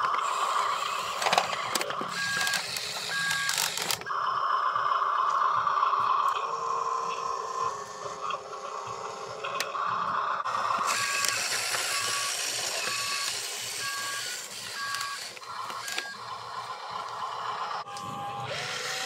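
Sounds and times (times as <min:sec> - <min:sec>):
drive motor and gears whirring: 0:00.0 - 0:19.0
toy truck motor whine: 0:00.0 - 0:19.0
two-tone reversing beeps: 0:01.5 - 0:06.0, 0:10.9 - 0:16.4.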